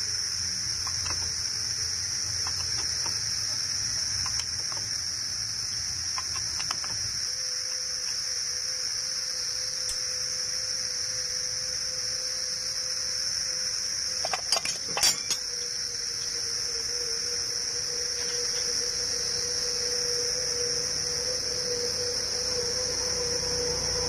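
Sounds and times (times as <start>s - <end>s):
faint steady hum: 0.0s - 24.0s
high-pitched insect drone: 0.0s - 24.0s
metallic clinks of tools: 14.2s - 15.7s.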